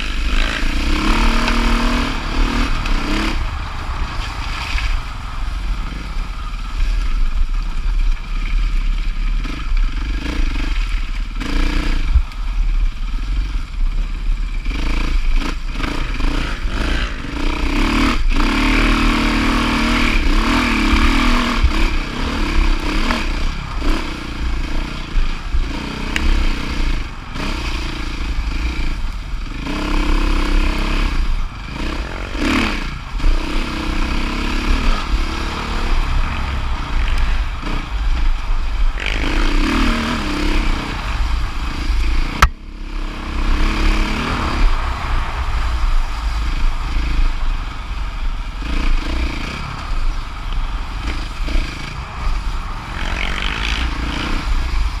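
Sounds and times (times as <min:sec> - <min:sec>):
dirt bike engine revving: 0:00.0 - 0:04.9, 0:05.5 - 0:55.0.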